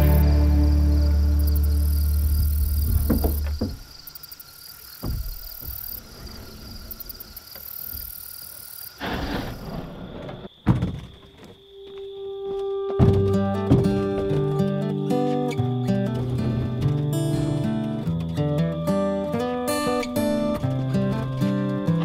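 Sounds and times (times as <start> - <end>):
background music: 0.0 - 2.9, 12.6 - 22.0
crickets and insects chirping: 0.0 - 22.0
soft knocks: 2.4 - 3.9, 5.0 - 5.8, 13.0 - 14.5.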